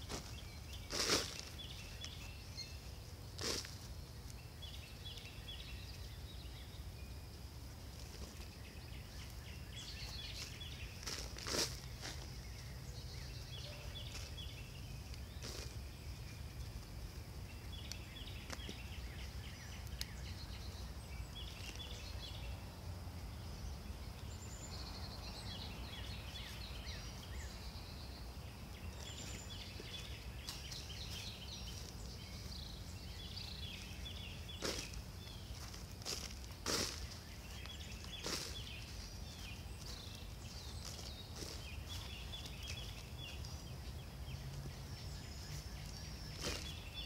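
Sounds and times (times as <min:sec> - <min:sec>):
hands digging through soil: 0:00.0 - 0:05.3, 0:08.0 - 0:16.9, 0:29.0 - 0:43.6, 0:45.6 - 0:47.0
birds chirping: 0:00.0 - 0:47.0.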